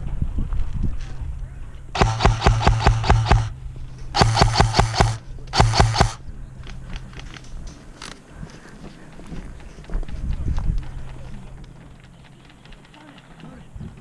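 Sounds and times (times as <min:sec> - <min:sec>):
airsoft gun firing bursts: 0:02.0 - 0:03.6, 0:04.2 - 0:06.2
low motor hum: 0:02.0 - 0:07.7.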